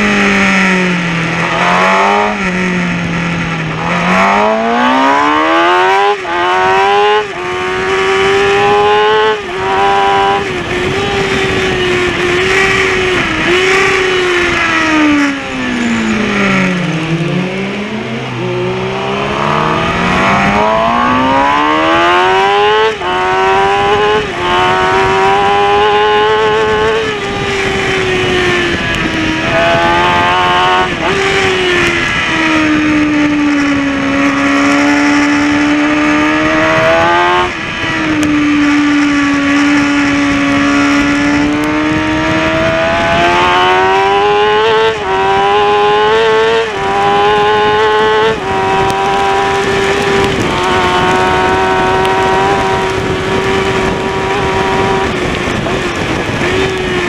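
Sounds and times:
motorcycle engine revving through gears: 0.0s - 57.0s
wind rush: 0.0s - 57.0s.

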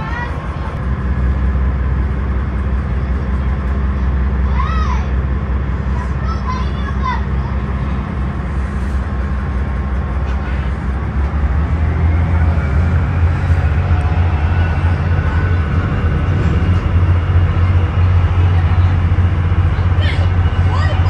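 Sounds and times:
low engine rumble: 0.0s - 21.0s.

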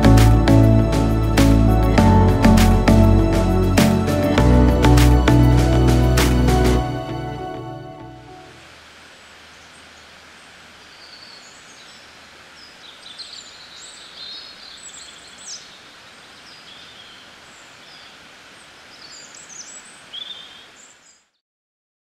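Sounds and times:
steady background hiss: 8.1s - 21.3s
small birds chirping and trilling: 9.2s - 21.4s.

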